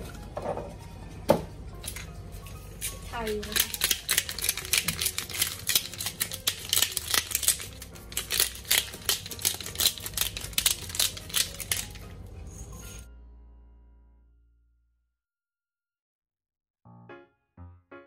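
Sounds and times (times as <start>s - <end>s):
pepper mill grinding: 2.8s - 13.0s.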